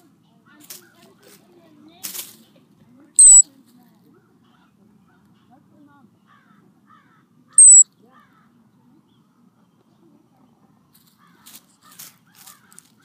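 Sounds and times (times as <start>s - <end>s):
rustling in mulch: 0.5s - 2.6s, 10.9s - 13.0s
squirrel chirp: 3.2s - 3.4s, 7.6s - 7.8s.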